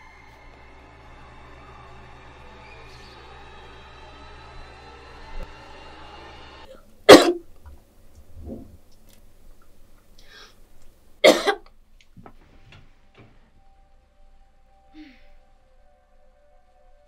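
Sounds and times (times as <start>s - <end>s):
person coughing: 7.1s - 7.4s, 11.2s - 11.6s.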